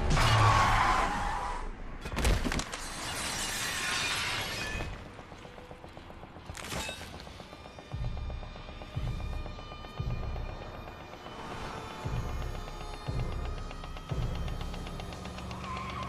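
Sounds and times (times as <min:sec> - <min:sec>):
metal scraping on asphalt: 0:02.7 - 0:05.6
tyres screeching: 0:10.4 - 0:16.0.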